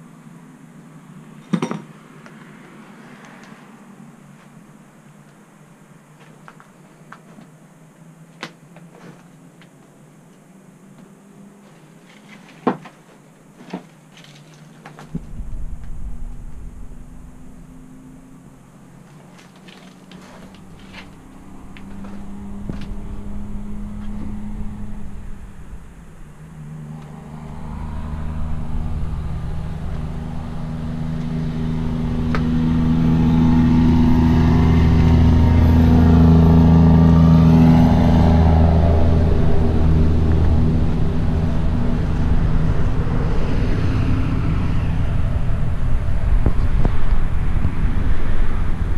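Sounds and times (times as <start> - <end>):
engine drone with phasing tone: 15.0 - 48.9.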